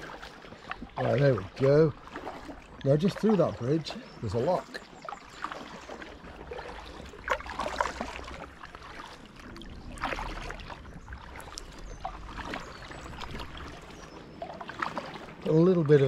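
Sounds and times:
paddle strokes splashing water: 0.0 - 16.0
wind rumble on microphone: 9.3 - 15.4.

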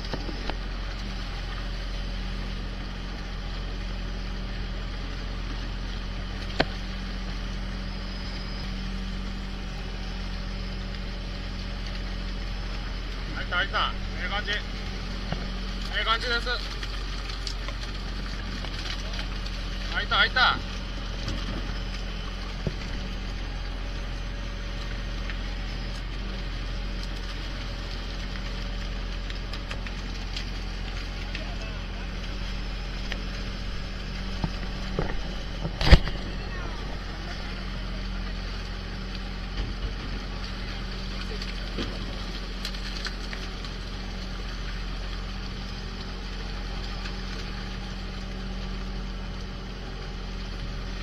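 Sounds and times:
boat engine humming: 0.0 - 51.0
fish thrashing and splashing: 13.9 - 49.3.

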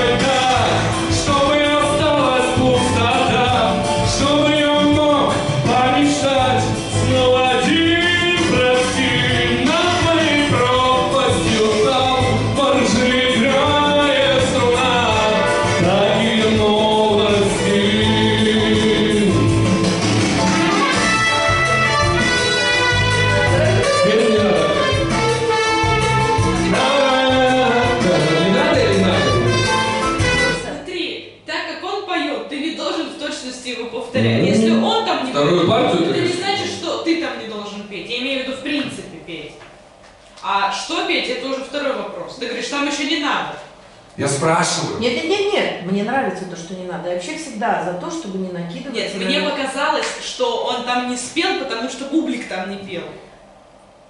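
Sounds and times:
man singing into a microphone: 0.0 - 19.7, 26.7 - 29.7
latin backing track: 0.0 - 30.9, 34.1 - 38.0.

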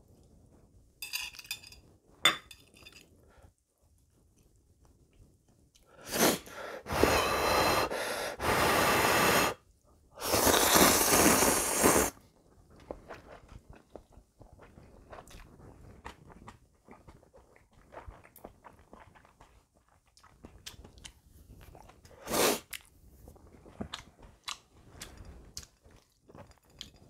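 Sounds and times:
loud noodle slurping: 6.0 - 9.6, 10.2 - 12.2
person blowing on food: 6.0 - 9.6, 10.2 - 12.2
wet chewing: 12.8 - 27.0.

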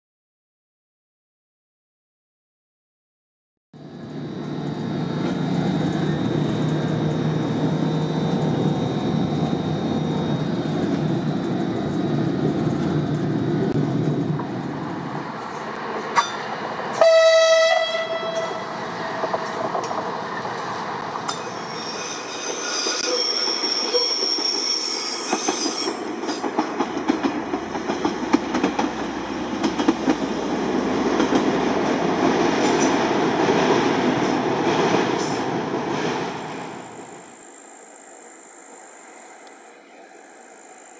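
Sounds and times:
diesel engine drone: 3.8 - 17.0
train horn blast: 16.9 - 19.2
wheels squealing: 18.2 - 26.4
wheels clattering over rails: 25.5 - 36.2.

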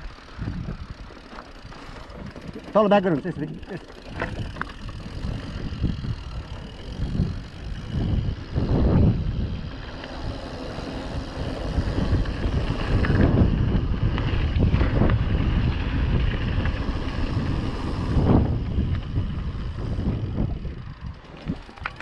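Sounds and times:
bike clicks and rattles: 0.0 - 22.0
wind buffeting microphone: 0.0 - 22.0.

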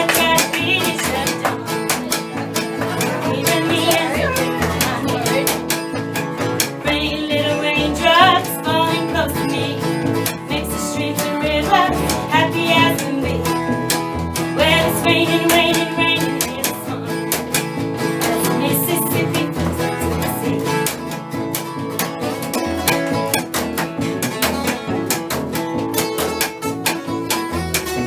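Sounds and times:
person singing: 0.0 - 5.8, 6.6 - 13.6, 14.6 - 17.4, 18.2 - 20.9
plucked double bass: 0.0 - 28.0
strummed acoustic guitar: 0.0 - 28.0.

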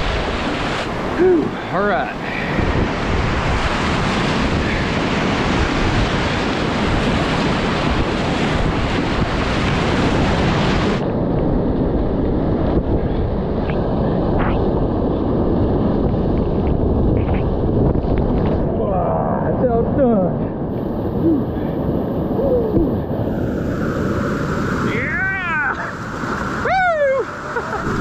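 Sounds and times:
whitewater rapids roaring: 22.2 - 28.0.

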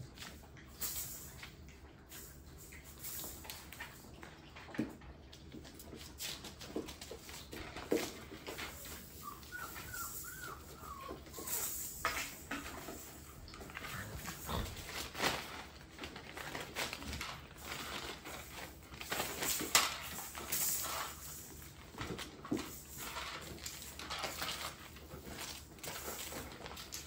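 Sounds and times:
paws scrabbling on hard floor: 0.0 - 27.0
puppy whining: 7.5 - 15.1.

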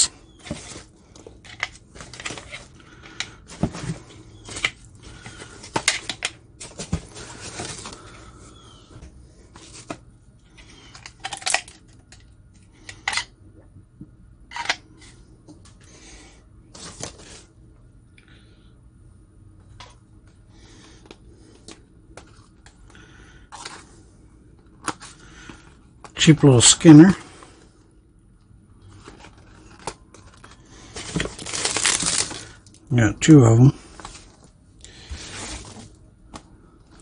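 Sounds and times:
packing peanuts rustling: 0.0 - 8.4, 28.9 - 32.9, 33.8 - 36.0.

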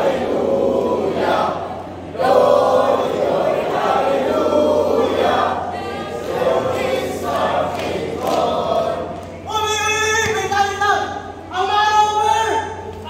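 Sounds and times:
group singing and chanting: 0.0 - 9.6.

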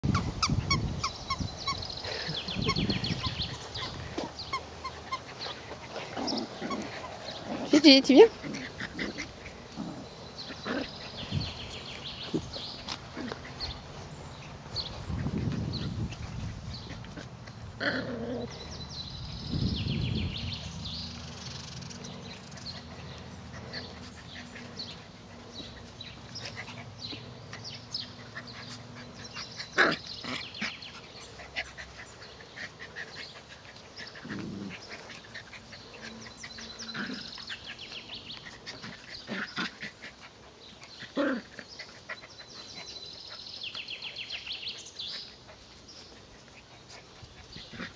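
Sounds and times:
puppies yipping and barking: 0.0 - 13.8.

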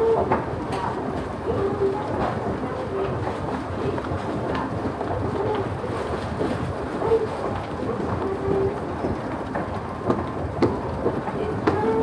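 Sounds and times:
footsteps: 0.0 - 12.0.

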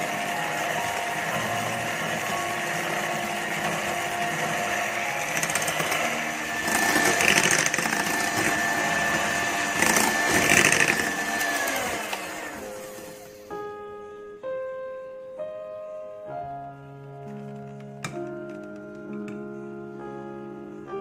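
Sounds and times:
electric hand mixer whining: 0.0 - 13.6.

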